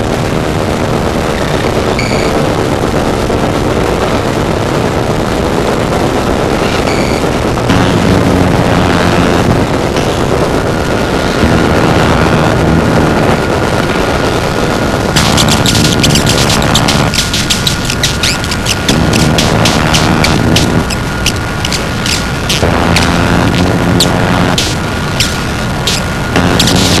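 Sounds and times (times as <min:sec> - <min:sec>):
low drone: 0:06.2 - 0:27.0
harsh distorted noise music: 0:06.5 - 0:13.4, 0:14.8 - 0:27.0
dense crackling: 0:07.2 - 0:27.0.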